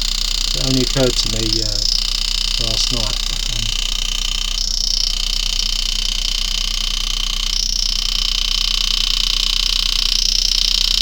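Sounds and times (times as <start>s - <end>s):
mechanical hum with whining tones: 0.0s - 8.5s.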